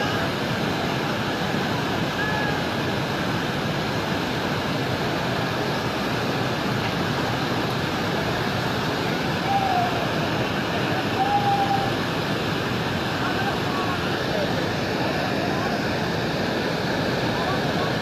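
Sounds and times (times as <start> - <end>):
floodwater rushing: 0.0 - 18.0
distant shouts: 9.2 - 12.5.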